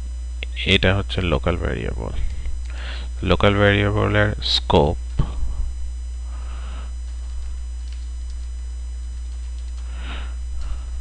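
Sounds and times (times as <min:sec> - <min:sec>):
electrical mains hum: 0:00.0 - 0:11.0
keyboard typing clicks: 0:07.8 - 0:08.5, 0:09.3 - 0:09.9.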